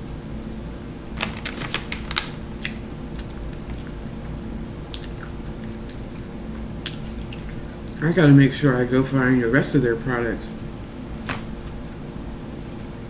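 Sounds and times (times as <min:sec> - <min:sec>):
food package crackling: 0:01.2 - 0:03.9.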